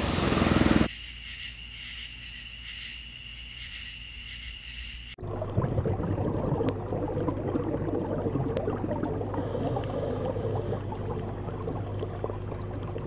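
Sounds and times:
crackling and bubbling water: 5.2 - 13.0
steady low hum: 8.1 - 13.0.

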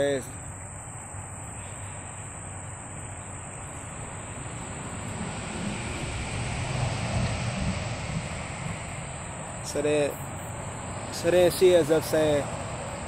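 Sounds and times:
low rumbling: 2.8 - 11.6.

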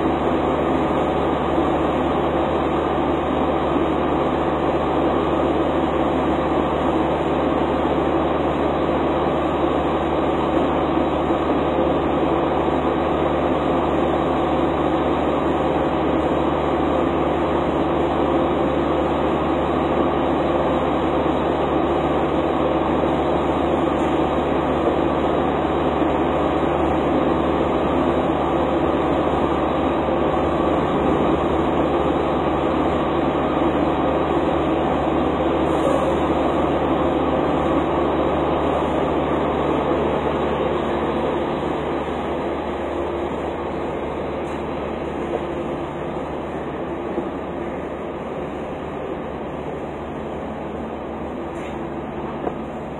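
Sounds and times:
fuel pump mechanical drone: 0.0 - 52.9
rushing hiss of fuel: 35.3 - 36.9.

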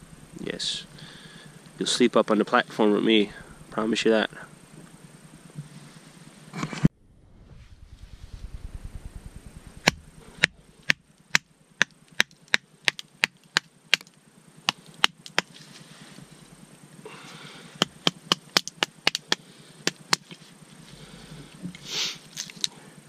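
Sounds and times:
hatchet chopping wood: 9.9 - 15.5, 17.8 - 20.4.

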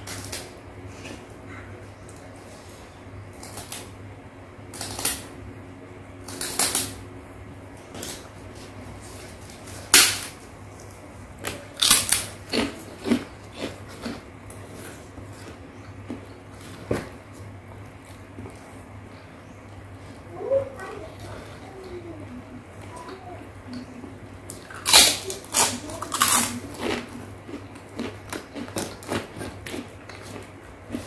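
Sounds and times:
low steady hum: 0.0 - 31.0
crackers snapping: 4.7 - 5.3, 6.2 - 7.0, 9.8 - 10.4, 11.4 - 14.6, 24.4 - 31.0.

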